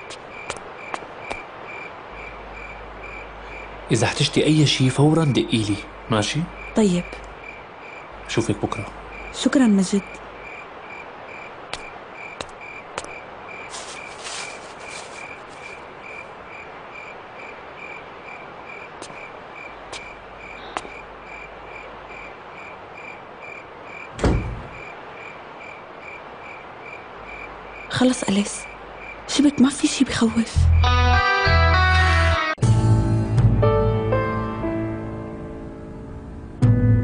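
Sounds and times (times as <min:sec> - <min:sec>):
cricket chirping: 0:00.0 - 0:30.4
heavy thud: 0:24.2 - 0:24.8.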